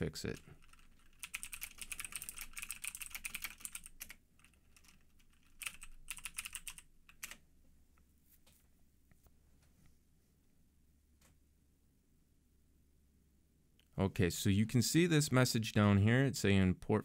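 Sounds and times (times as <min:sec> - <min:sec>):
typing on computer keyboard: 0:00.6 - 0:07.4.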